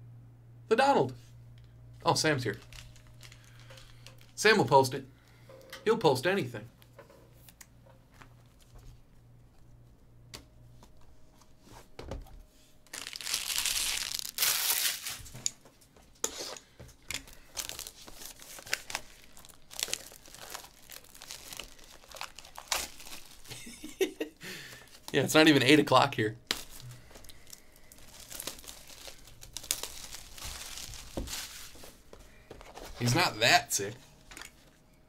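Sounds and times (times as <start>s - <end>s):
plastic crinkling: 2.5s - 4.4s, 12.8s - 15.5s, 17.1s - 23.7s, 26.4s - 33.1s
plastic wrap ripping: 2.5s - 4.4s, 12.8s - 15.4s, 17.2s - 23.6s, 26.4s - 31.8s.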